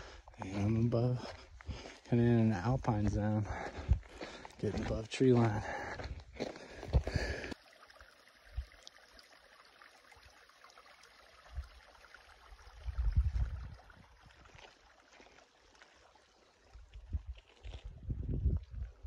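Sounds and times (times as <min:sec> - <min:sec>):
low rumbles on microphone: 0:12.8 - 0:14.1, 0:16.9 - 0:19.0.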